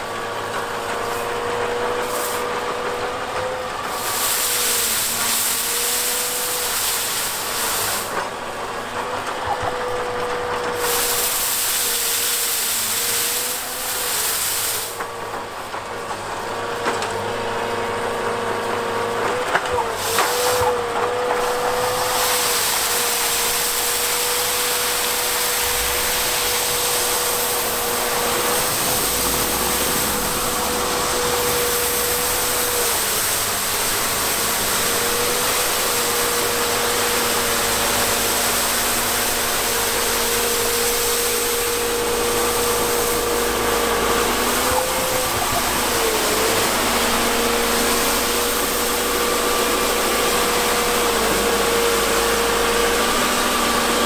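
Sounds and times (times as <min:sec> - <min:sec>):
hiss: 0:02.0 - 0:02.6, 0:03.9 - 0:08.2, 0:10.7 - 0:15.1, 0:19.9 - 0:20.8, 0:21.4 - 0:54.0
rotating brush sweeping snow: 0:02.0 - 0:02.6, 0:03.9 - 0:08.2, 0:10.8 - 0:15.0, 0:20.0 - 0:54.0
diesel engine running: 0:12.7 - 0:54.0
steady whine: 0:23.9 - 0:36.7.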